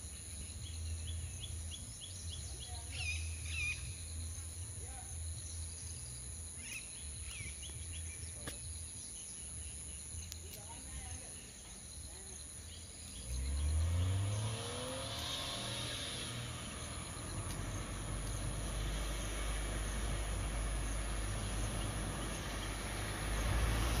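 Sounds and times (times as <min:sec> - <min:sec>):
car engine accelerating: 0:13.0 - 0:24.0.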